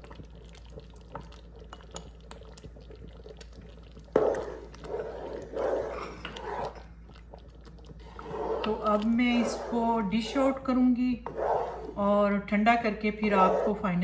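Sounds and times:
metal spatula stirring thick pudding: 0:04.1 - 0:14.0.

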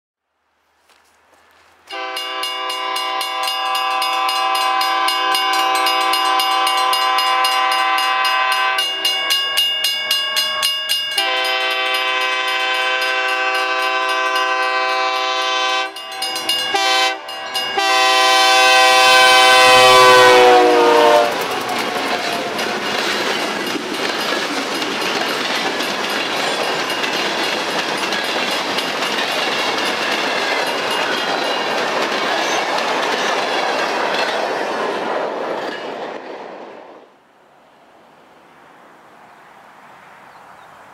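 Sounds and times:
locomotive air horn: 0:01.9 - 0:09.4, 0:11.1 - 0:22.7
train wheels clicking over rail joints: 0:21.3 - 0:36.5.

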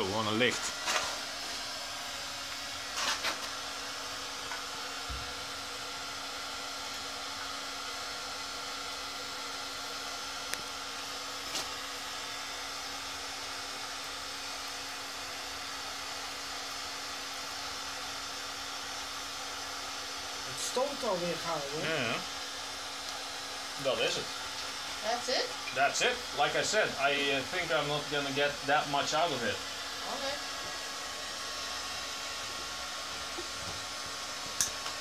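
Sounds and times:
furnace fan whir: 0:00.0 - 0:35.0.

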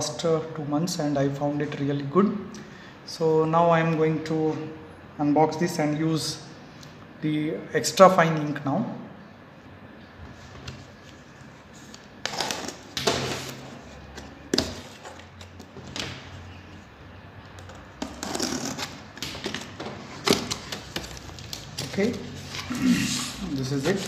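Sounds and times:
cardboard scraping and rustling: 0:18.0 - 0:24.0.

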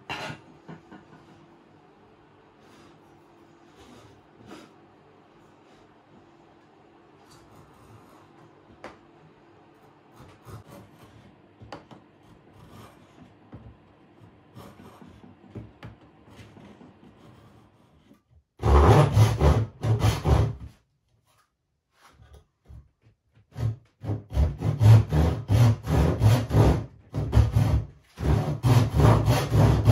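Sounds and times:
hand tool scraping wood: 0:10.2 - 0:11.4, 0:12.2 - 0:13.4, 0:14.5 - 0:15.4, 0:16.3 - 0:20.7, 0:23.5 - 0:29.9.

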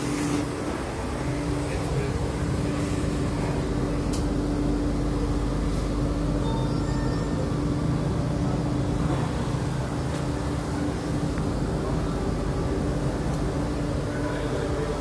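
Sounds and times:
train electric hum and rumble: 0:00.0 - 0:15.0.

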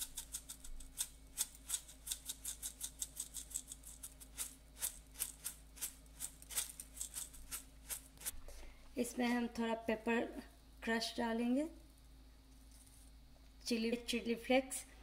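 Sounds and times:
spice grinder clicking: 0:00.0 - 0:08.0.

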